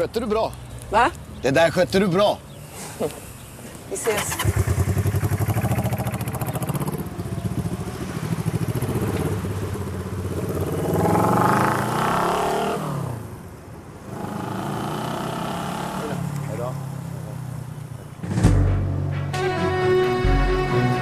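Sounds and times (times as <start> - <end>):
motorcycle engine revving: 4.1 - 13.2, 14.1 - 16.3.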